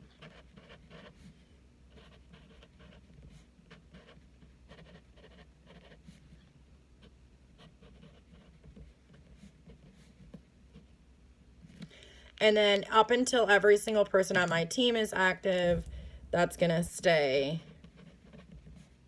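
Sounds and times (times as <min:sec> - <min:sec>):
pen scratching on paper: 0:00.0 - 0:06.3, 0:07.0 - 0:10.9, 0:17.7 - 0:19.0.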